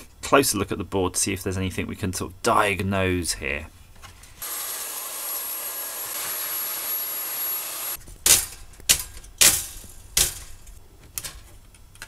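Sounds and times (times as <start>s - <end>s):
vacuum cleaner whining: 4.4s - 8.0s
sharp knocks of toaster parts: 8.2s - 10.7s.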